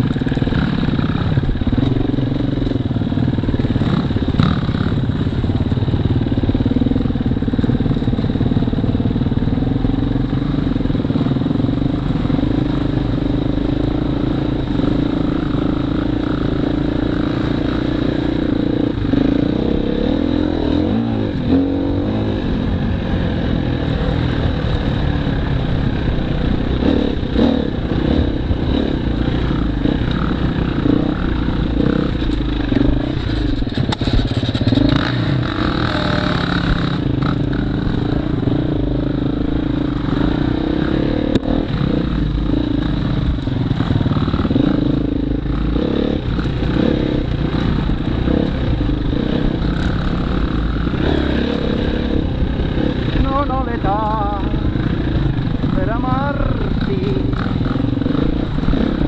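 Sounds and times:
motorcycle engine running: 0.0s - 59.0s
motorcycle knocks and clatter: 26.8s - 38.0s.

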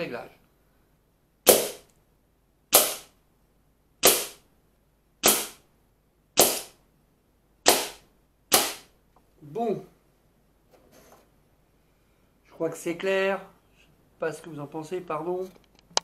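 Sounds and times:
air rifle shots: 1.5s - 1.9s, 2.7s - 3.1s, 4.0s - 4.4s, 5.2s - 5.6s, 7.6s - 9.0s
pellets striking paper target: 1.5s - 1.9s, 2.7s - 3.1s, 4.0s - 4.4s, 5.2s - 5.6s, 6.4s - 6.8s, 7.6s - 8.9s.

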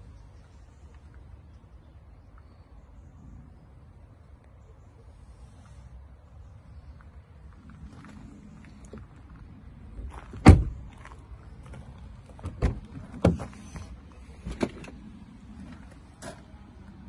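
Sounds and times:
car door thump: 10.4s - 10.8s.

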